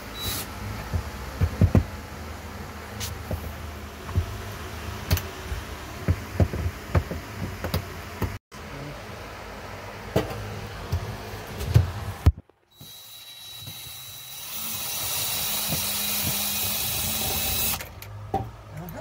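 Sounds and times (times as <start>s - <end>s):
cordless drill motor: 12.7s - 17.8s.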